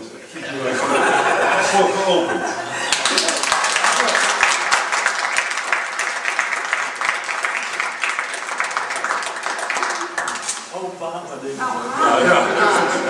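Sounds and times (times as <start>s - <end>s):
crowd applauding: 2.7s - 10.7s.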